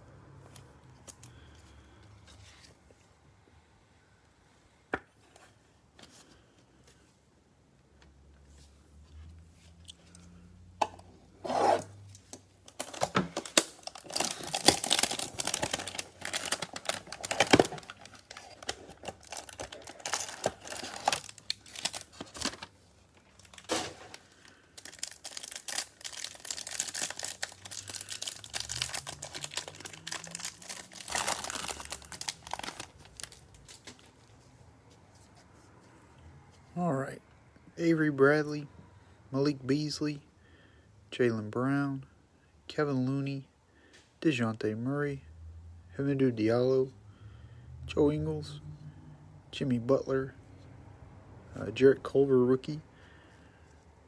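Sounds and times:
cellophane crinkling: 0:12.7 - 0:34.1.

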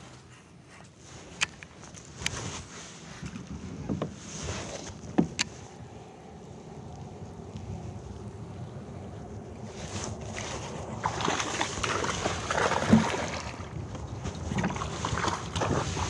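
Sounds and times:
wind on microphone: 0:02.1 - 0:16.0
water sloshing around kayak: 0:09.5 - 0:16.0.

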